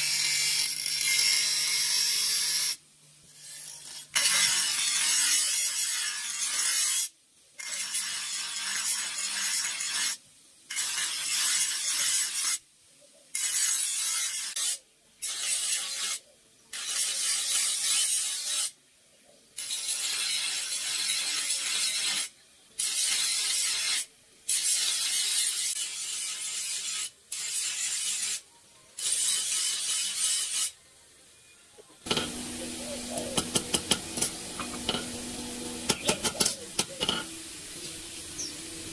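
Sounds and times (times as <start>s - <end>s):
blade grinding on bench grinder: 32.1s - 37.4s.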